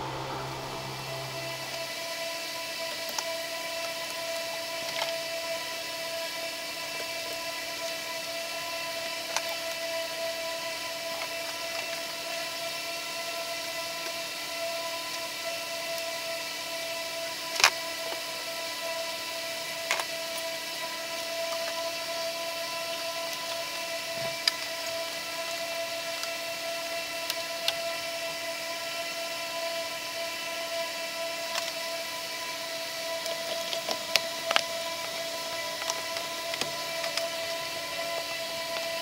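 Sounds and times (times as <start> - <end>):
electrical hum: 0.0 - 2.0.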